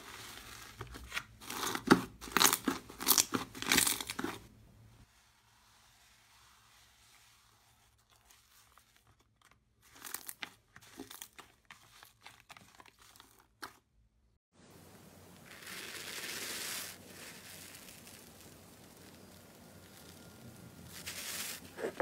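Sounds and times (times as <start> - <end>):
crunchy slime crackling: 0.0 - 4.4, 15.4 - 22.0.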